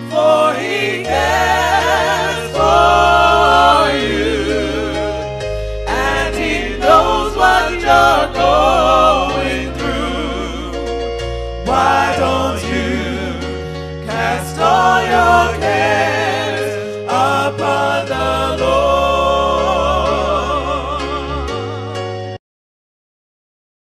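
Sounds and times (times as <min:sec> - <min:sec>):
bass line: 0:00.0 - 0:22.4
sustained chords: 0:00.0 - 0:22.4
voices singing gospel: 0:00.0 - 0:22.4.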